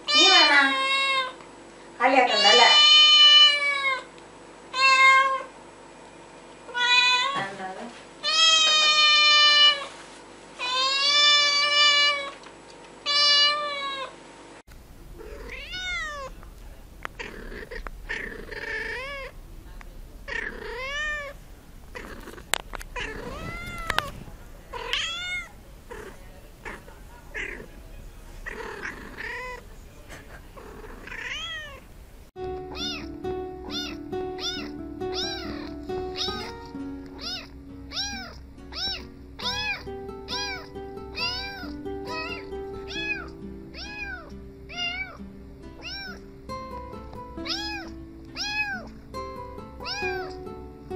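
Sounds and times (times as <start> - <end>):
cats meowing: 0.0 - 1.4, 2.3 - 4.1, 4.7 - 5.5, 6.7 - 7.5, 8.2 - 9.9, 10.6 - 12.4, 13.0 - 14.1, 15.1 - 31.9, 32.6 - 45.2, 45.8 - 46.3, 47.4 - 49.0, 49.8 - 50.4
kitten meows: 0.0 - 1.4, 2.3 - 4.1, 4.7 - 5.5, 6.7 - 7.5, 8.2 - 9.9, 10.6 - 12.4, 13.1 - 14.1, 15.2 - 16.4, 17.2 - 19.4, 20.3 - 27.7, 28.4 - 29.6, 30.8 - 31.8, 32.7 - 33.1, 33.7 - 36.6, 37.2 - 45.2, 45.8 - 46.2, 47.4 - 48.9, 49.8 - 50.4
music: 32.4 - 50.9.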